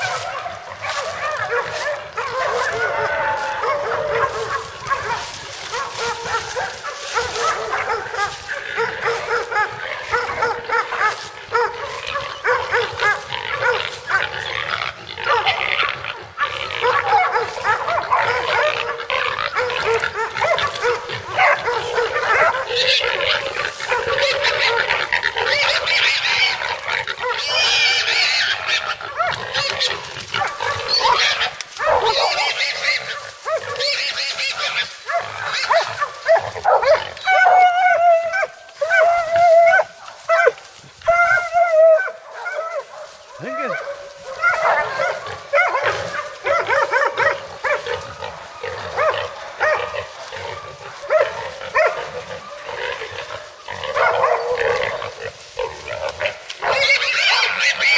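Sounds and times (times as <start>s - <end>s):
dogs barking and baying: 0.0s - 57.9s
hog squealing: 0.8s - 40.4s, 41.0s - 42.6s, 55.8s - 57.9s.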